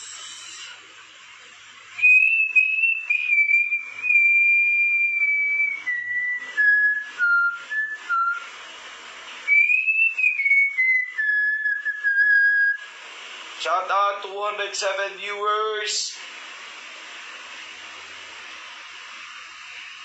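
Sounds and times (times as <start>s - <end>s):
man whistling a slow tune: 2.0s - 8.5s, 9.4s - 12.9s.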